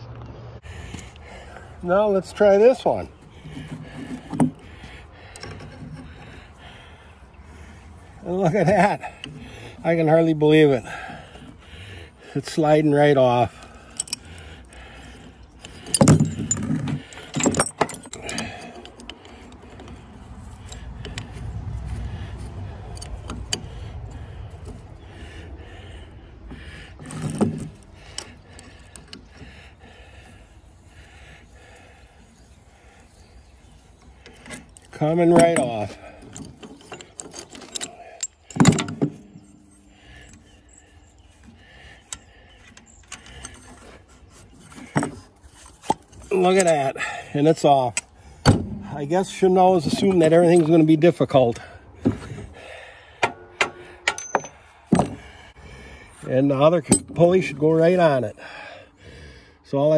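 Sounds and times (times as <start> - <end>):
metal clinks and rattles: 13.3 - 24.8, 34.0 - 47.2, 53.2 - 55.2
faint metal scrapes and clicks: 32.2 - 46.9.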